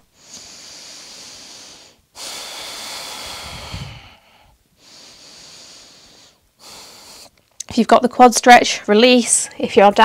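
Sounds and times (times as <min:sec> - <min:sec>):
woman breathing slowly: 0:00.0 - 0:07.4.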